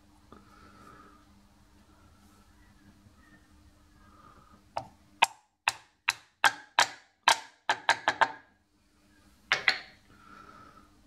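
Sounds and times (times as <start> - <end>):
steel part knocking on wood: 6.1 - 8.4.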